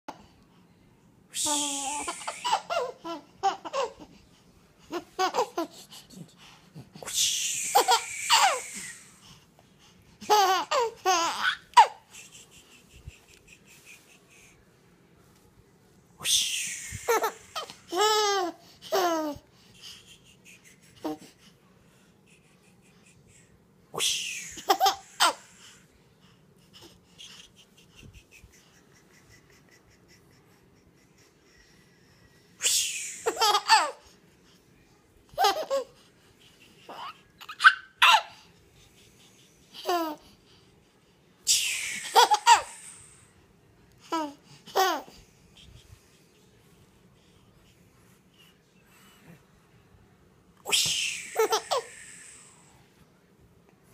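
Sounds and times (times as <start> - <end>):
baby laughing: 1.5 - 4.2, 4.8 - 9.2, 10.2 - 14.6, 16.9 - 21.4, 24.4 - 25.6, 26.8 - 31.5, 33.2 - 34.2, 35.3 - 38.5, 39.6 - 40.3, 41.9 - 43.0, 44.1 - 45.8, 50.7 - 52.0.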